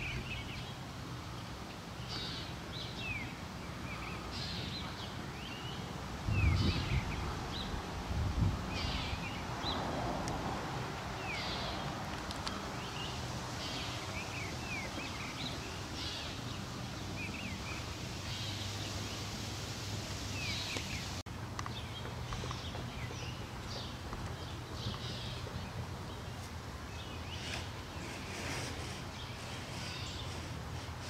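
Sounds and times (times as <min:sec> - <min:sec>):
songbirds chirping: 0:00.0 - 0:31.0.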